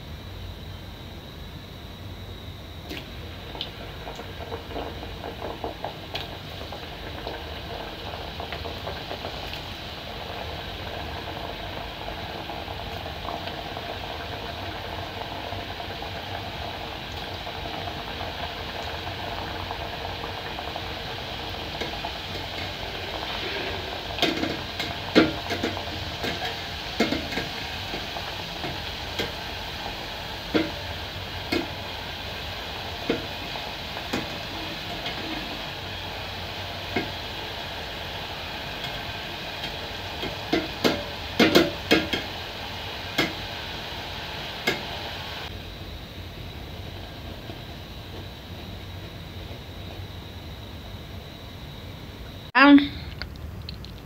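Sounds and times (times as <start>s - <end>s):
dough sizzling in hot oil: 0.0s - 52.8s
skimmer scraping metal pot: 21.8s - 32.3s, 32.9s - 36.0s.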